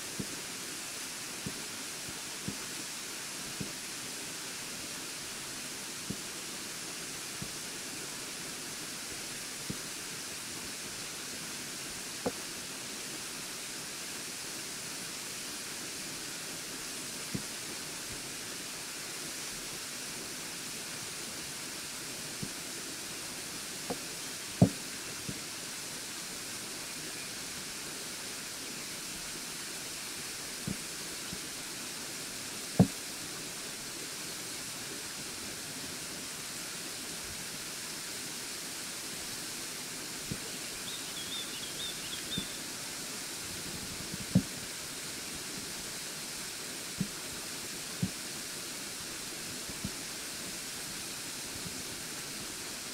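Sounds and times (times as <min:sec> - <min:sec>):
waterfall rushing: 0:00.0 - 0:52.9
faint high twittering: 0:40.7 - 0:42.7.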